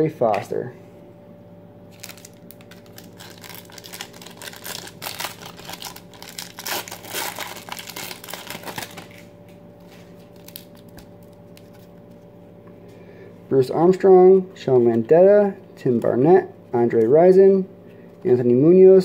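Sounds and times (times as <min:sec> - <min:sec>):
foil wrapper crinkling: 0:01.9 - 0:12.0.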